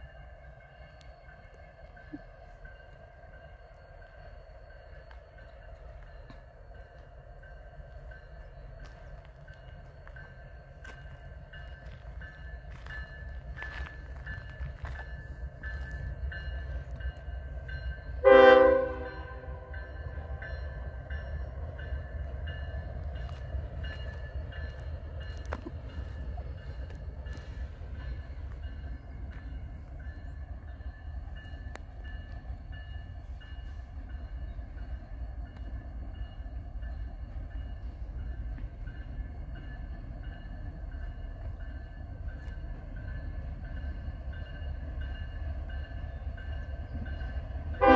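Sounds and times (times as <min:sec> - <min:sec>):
train rumble: 0:00.0 - 0:47.9
train horn blast: 0:18.2 - 0:20.4.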